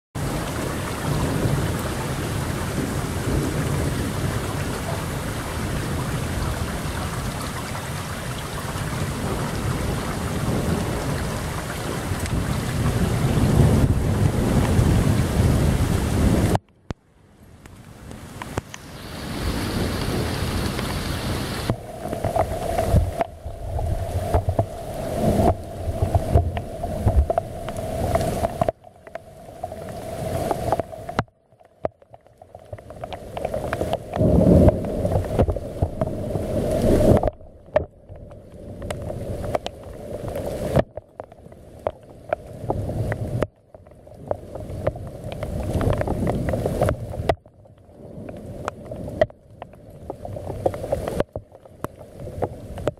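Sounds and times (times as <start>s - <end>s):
deep thunder rumbling: 0.2s - 16.6s, 19.2s - 28.7s, 34.2s - 37.7s
wind buffeting microphone: 0.2s - 16.6s, 18.1s - 31.2s, 33.2s - 40.9s, 44.3s - 47.4s.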